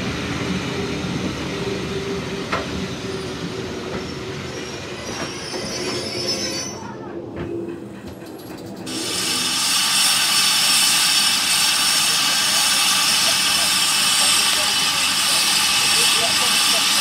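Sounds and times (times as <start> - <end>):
train wheels squealing: 0.7 - 17.0
wheels clicking over rail joints: 7.4 - 9.0
steam hissing: 8.9 - 17.0.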